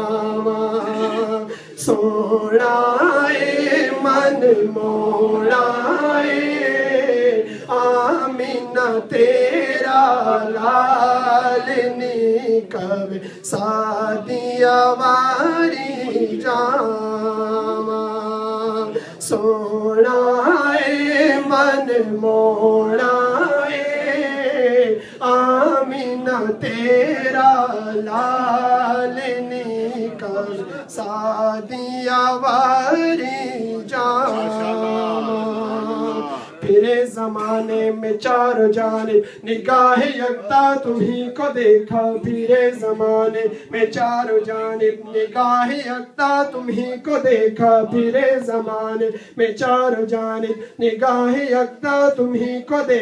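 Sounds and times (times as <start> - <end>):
man singing into a microphone: 0.0 - 53.0
short breaths: 1.5 - 1.8, 13.2 - 13.5, 25.0 - 25.2, 49.1 - 49.4.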